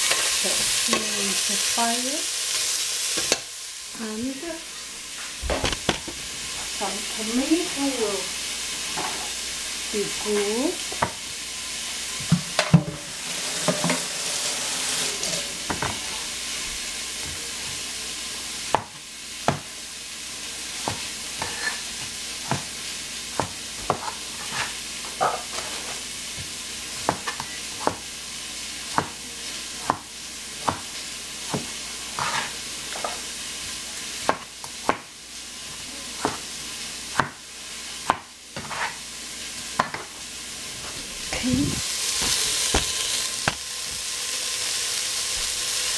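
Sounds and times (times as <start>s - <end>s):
vegetables sizzling in a pan: 0.0s - 45.9s
spatula scraping a pan: 13.2s - 16.3s, 20.8s - 22.6s, 23.8s - 27.9s, 31.5s - 33.3s, 38.6s - 39.0s.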